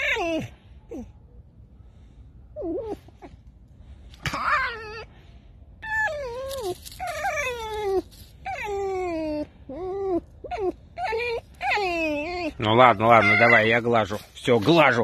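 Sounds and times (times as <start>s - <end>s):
fox cry: 0.0s - 1.1s, 4.2s - 5.2s, 5.8s - 14.2s
fox squeaky whines: 0.0s - 1.1s, 2.6s - 3.4s, 4.3s - 5.1s, 5.8s - 14.2s.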